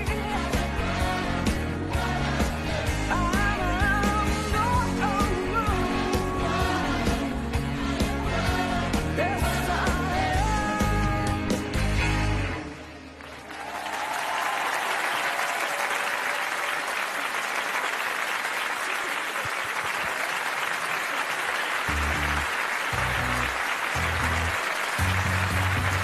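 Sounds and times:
audience applauding loudly: 12.9 - 26.0.

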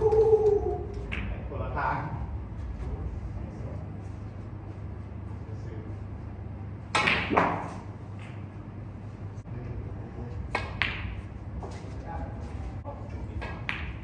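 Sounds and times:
steady low hum: 0.0 - 14.0
snooker balls knocking: 7.0 - 8.4, 10.5 - 11.2, 13.4 - 14.0.

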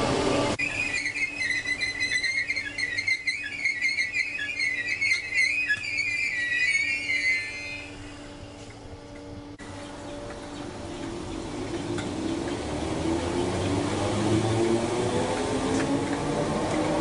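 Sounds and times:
train wheels squealing on rails: 0.6 - 9.4.

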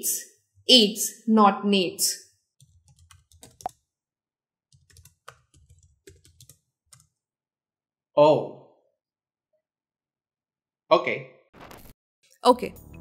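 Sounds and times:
smartphone keyboard typing clicks: 2.6 - 3.8, 4.8 - 7.1.

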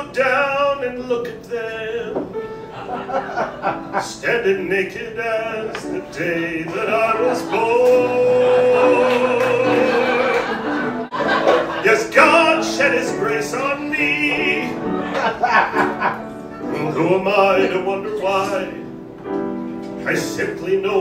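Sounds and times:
man singing: 0.0 - 2.4, 3.9 - 10.6, 11.7 - 15.7, 16.6 - 19.0, 19.9 - 21.0
piano accompaniment: 0.0 - 21.0.

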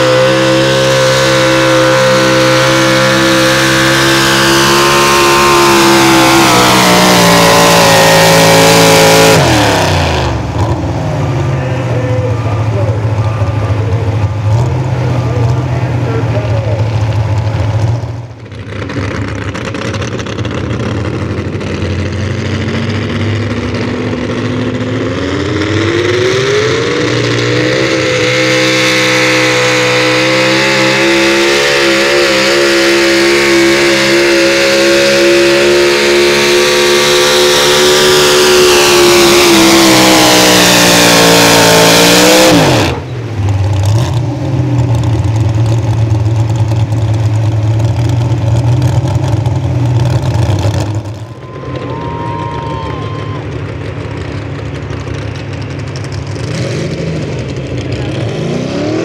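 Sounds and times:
low engine rumble: 0.0 - 28.6, 42.6 - 58.4
truck engine at full throttle: 0.0 - 59.0.

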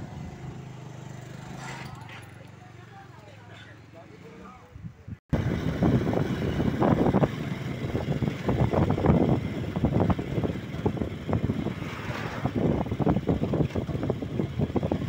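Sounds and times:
road and engine rumble: 0.0 - 15.0
wind buffeting microphone: 4.8 - 15.0.

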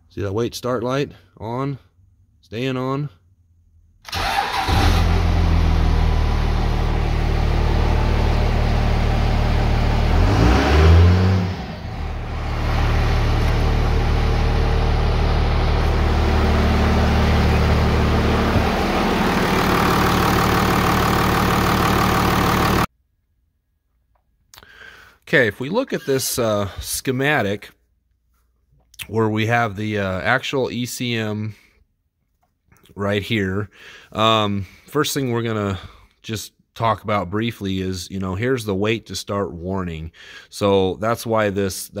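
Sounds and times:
diesel engine revving: 4.1 - 22.9
diesel engine starting and idling: 4.1 - 22.9.

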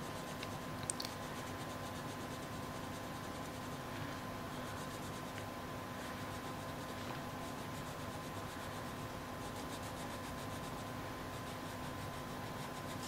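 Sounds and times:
faint steady hum: 0.0 - 13.0
small ticks: 0.3 - 1.3
pencil shading on paper: 1.2 - 3.9, 4.5 - 5.4, 6.1 - 13.0.

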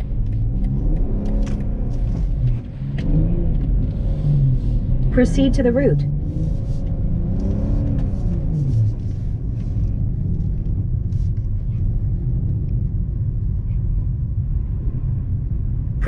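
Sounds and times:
car engine and tyres rumbling: 0.0 - 16.0.

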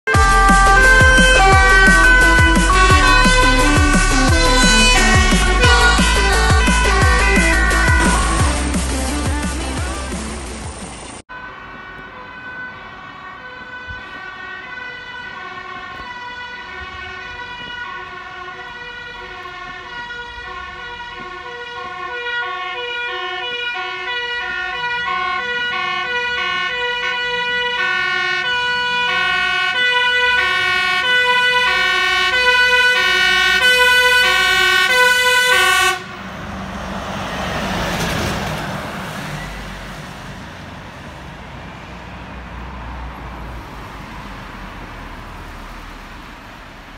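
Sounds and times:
two-tone siren: 0.1 - 8.7, 11.3 - 36.2
truck engine and tyres passing: 0.1 - 46.9.

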